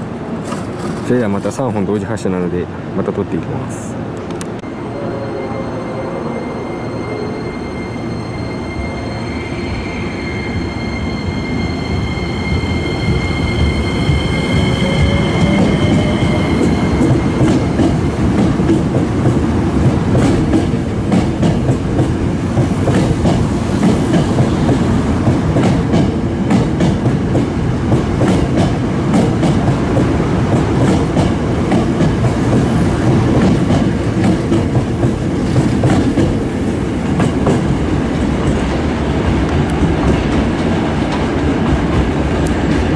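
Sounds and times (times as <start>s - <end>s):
train rumble: 0.0s - 42.9s
steady high tone: 4.6s - 18.2s.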